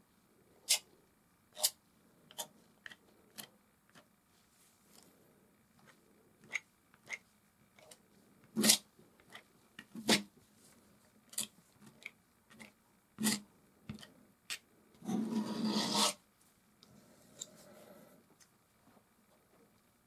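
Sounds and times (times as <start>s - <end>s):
palette knife scraping paint: 8.6s - 10.3s, 11.3s - 16.2s.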